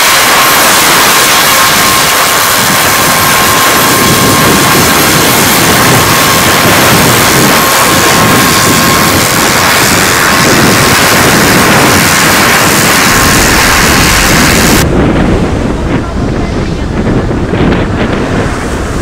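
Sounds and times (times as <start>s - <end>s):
loud steady hiss: 0.0s - 14.8s
wind buffeting microphone: 0.0s - 19.0s.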